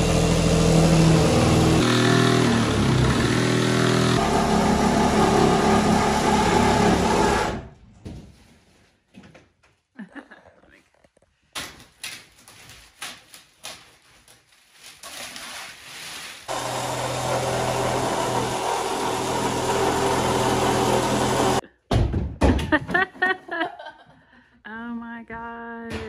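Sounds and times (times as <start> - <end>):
plastic film crinkling: 11.8 - 16.5
cordless drill running: 16.5 - 21.6.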